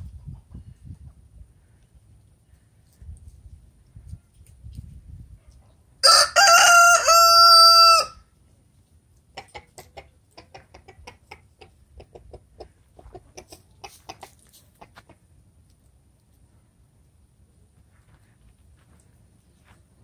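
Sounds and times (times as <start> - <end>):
rooster crowing: 6.0 - 8.2
chicken clucking softly: 9.2 - 15.4.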